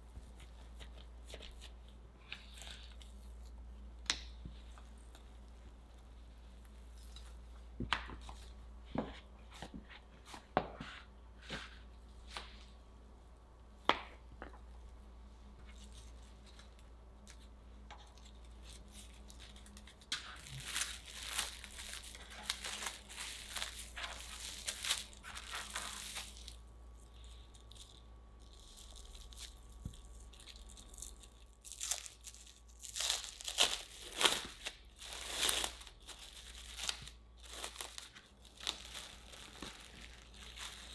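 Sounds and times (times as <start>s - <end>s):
cling film crinkling: 15.8s - 40.9s.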